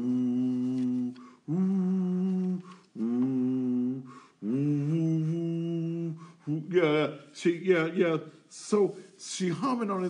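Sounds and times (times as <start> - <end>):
man humming: 0.0 - 7.0.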